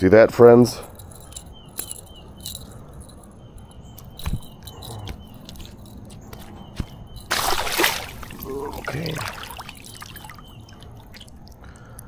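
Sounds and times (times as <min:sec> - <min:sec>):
faint high chirp: 0:08.0 - 0:11.2.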